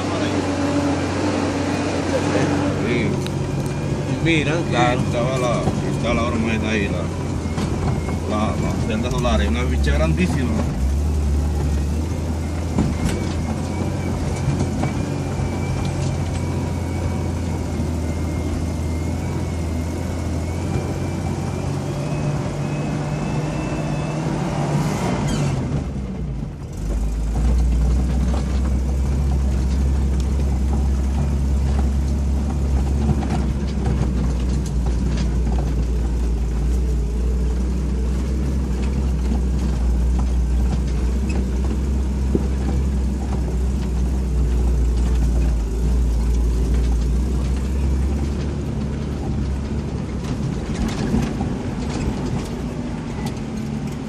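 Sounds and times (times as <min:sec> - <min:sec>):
vehicle engine drone: 0:00.0 - 0:54.0
vehicle body knocks and rattles: 0:07.3 - 0:09.4, 0:10.4 - 0:15.6, 0:26.8 - 0:54.0.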